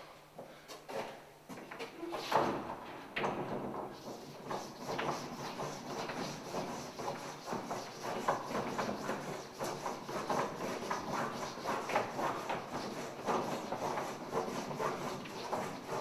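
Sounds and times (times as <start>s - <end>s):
chalk scraping on blackboard: 4.0s - 16.0s.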